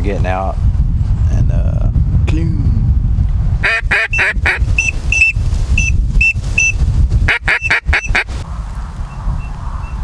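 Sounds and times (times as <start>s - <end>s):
wind rumble on microphone: 0.0s - 10.0s
short high whistled peeps: 4.8s - 6.8s
duck quacking: 7.3s - 8.3s.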